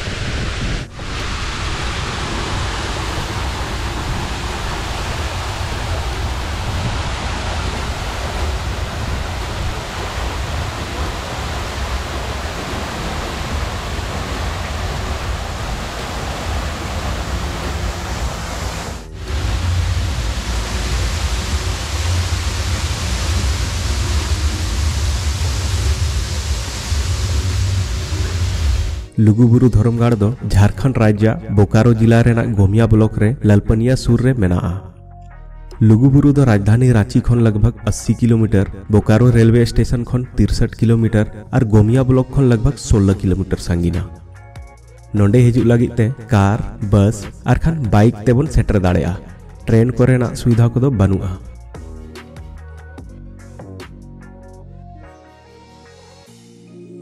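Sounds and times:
waterfall rushing: 0.0s - 29.1s.

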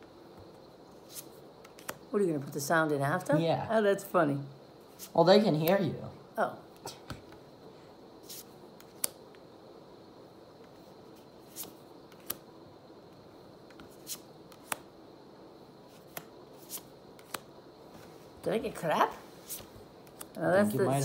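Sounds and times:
trading cards snapping and clicking: 1.1s - 2.0s, 8.3s - 9.2s, 11.5s - 12.4s, 13.7s - 14.9s, 15.9s - 17.5s, 19.5s - 20.4s.

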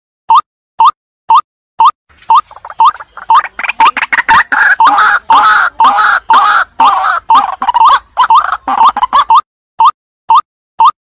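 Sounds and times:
waterhen calling: 2.2s - 9.4s.

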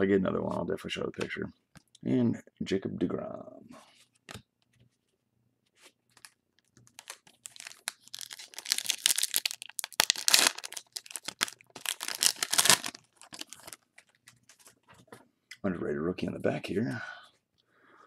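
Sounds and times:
foil wrapper tearing and crinkling: 6.2s - 14.6s.

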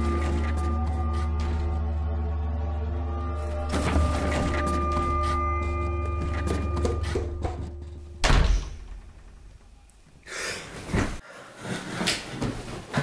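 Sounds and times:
sharp gasping breaths: 10.2s - 12.0s.

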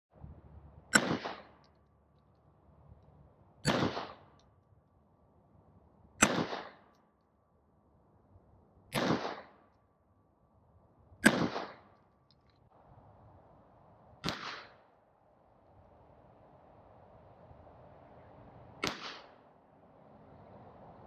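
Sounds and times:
pistol shots with echo: 0.9s - 1.6s, 3.6s - 4.4s, 6.2s - 6.9s, 8.9s - 9.7s, 11.2s - 12.0s, 14.2s - 14.9s, 18.8s - 19.4s.

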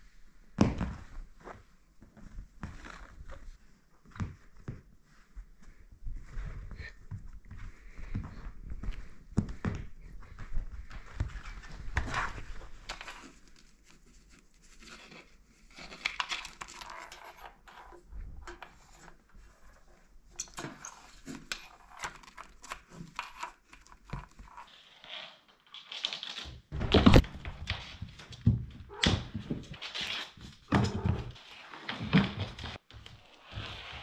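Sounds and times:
cat pouncing and chasing: 26.1s - 34.0s
cable dragged over floor: 29.6s - 34.0s.

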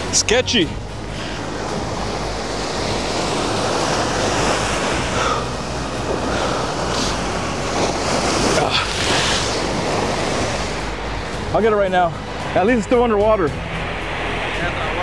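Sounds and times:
wind on microphone: 0.7s - 11.5s.

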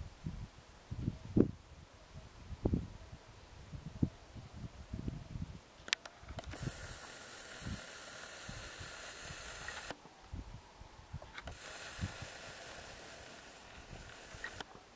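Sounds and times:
wind buffeting microphone: 0.0s - 5.6s, 6.2s - 14.6s
high hiss: 6.4s - 10.0s, 11.3s - 14.9s.

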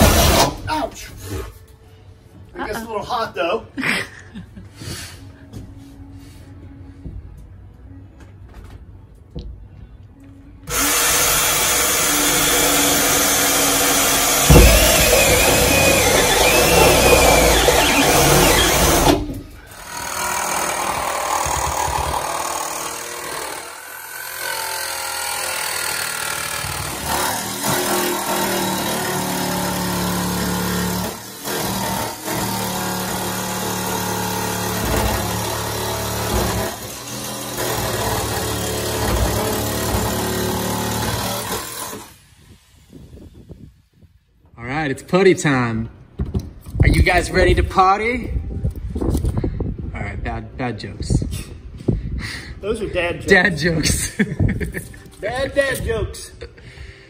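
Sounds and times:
drill boring through sheet metal: 0.0s - 0.6s, 10.7s - 42.9s
jigsaw cutting steel: 0.0s - 0.6s, 10.7s - 42.5s.

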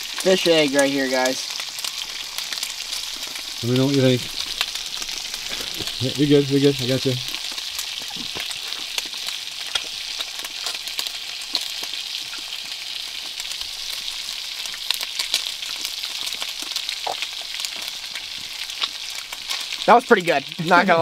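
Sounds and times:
food sizzling in a pan: 0.0s - 21.0s
fat popping: 7.3s - 10.7s, 16.6s - 19.1s.

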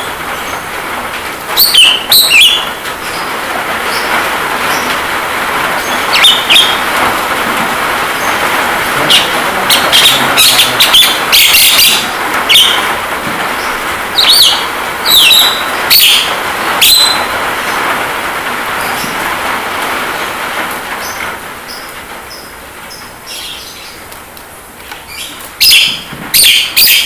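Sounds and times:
rain hiss: 0.0s - 27.0s
myna chirps and whistles: 6.1s - 6.8s, 14.2s - 17.2s.

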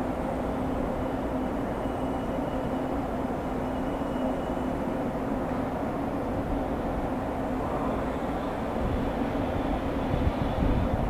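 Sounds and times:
faint high whine: 0.0s - 5.6s
freight train rumbling: 0.0s - 11.0s.

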